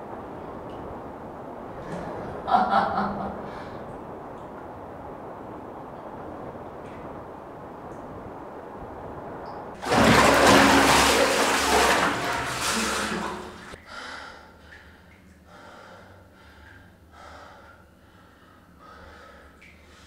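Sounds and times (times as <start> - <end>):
bathwater splashing: 9.8 - 13.8.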